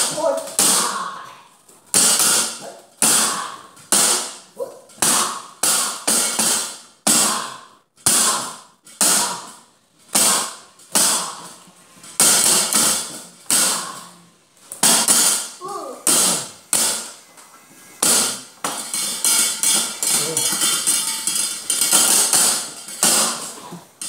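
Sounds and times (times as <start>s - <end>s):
metal percussion hits: 14.8s - 17.2s, 18.0s - 24.0s.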